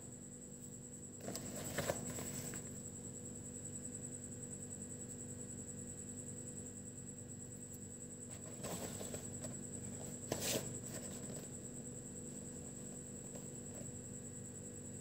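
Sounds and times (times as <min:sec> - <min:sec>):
paperboard rustling: 0:01.2 - 0:02.7, 0:08.3 - 0:11.6
cardboard scraping: 0:08.3 - 0:11.5.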